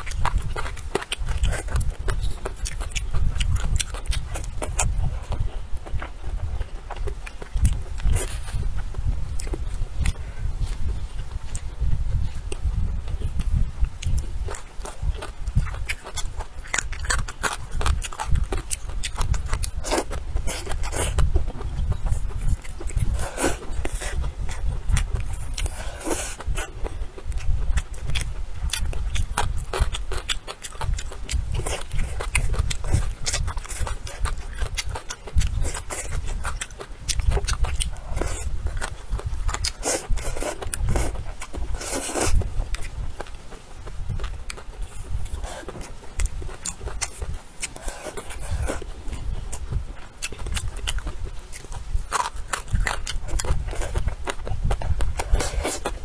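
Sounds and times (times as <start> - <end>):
wet chewing and lip-smacking: 0.0 - 56.0
slurping: 37.2 - 43.0.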